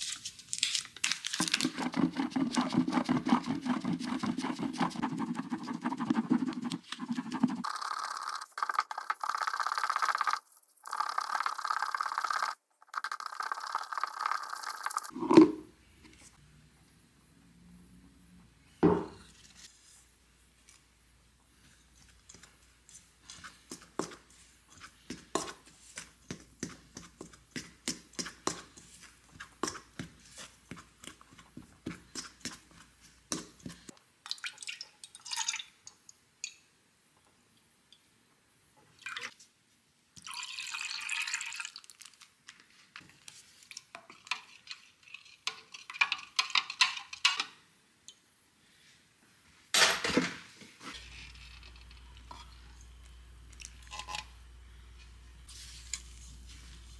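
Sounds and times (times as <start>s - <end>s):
liquid pouring into plastic cup: 40.2s - 42.3s.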